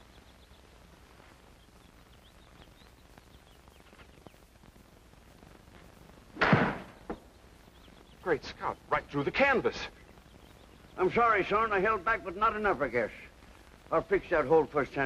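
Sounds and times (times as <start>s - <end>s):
faint bird chirps: 0.0s - 4.6s, 6.8s - 11.5s.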